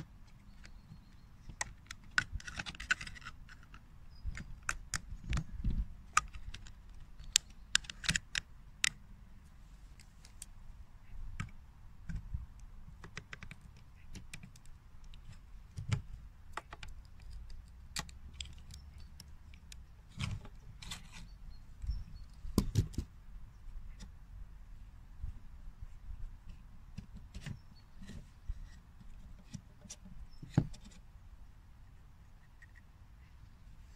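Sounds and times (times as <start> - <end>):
plastic gearbox clicks and taps: 1.4 - 9.0.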